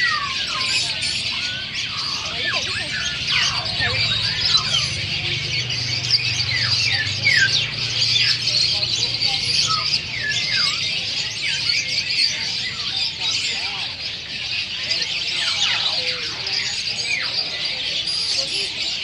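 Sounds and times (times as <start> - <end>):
downward-sliding bird calls: 0.0 - 13.6
caged birds chirping: 0.0 - 19.0.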